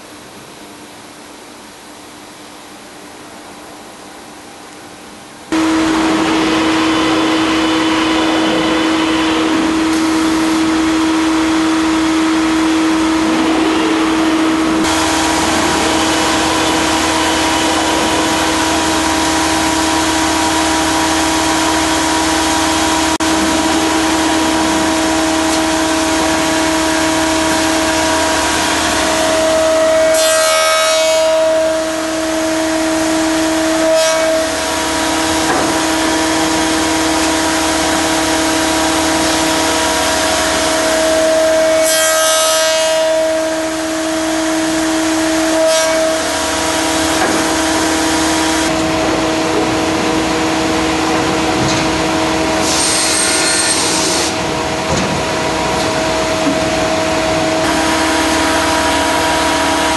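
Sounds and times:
crosscut saw running: 5.5 - 54.6, 55.6 - 59.9
saw blade cutting timber: 5.6 - 48.8, 52.6 - 54.4.

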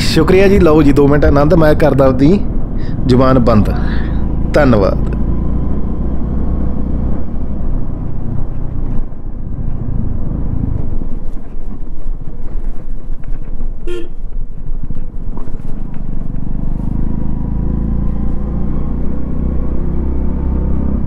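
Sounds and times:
wind noise: 0.0 - 4.2, 5.8 - 17.2
motorcycle engine rumble: 0.0 - 21.0
vehicle horn toot: 13.8 - 14.2.

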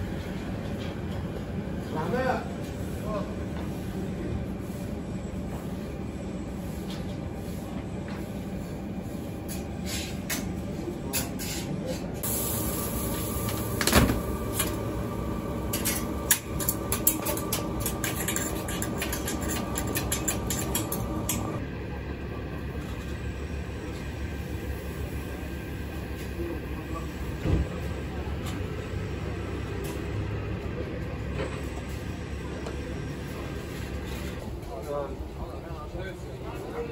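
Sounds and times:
low hum of street noise: 0.0 - 36.9
metal tongs clattering on griddle: 15.7 - 21.6.

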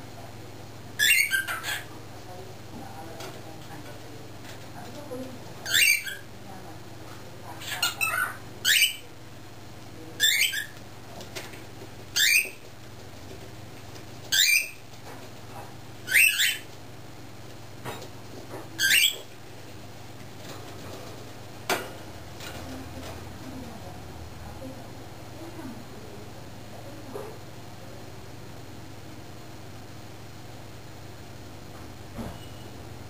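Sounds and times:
cockatiel calling: 1.0 - 1.9, 5.6 - 6.3, 7.6 - 9.0, 10.2 - 10.8, 12.2 - 12.6, 14.3 - 14.8, 16.0 - 16.7, 18.8 - 19.3.

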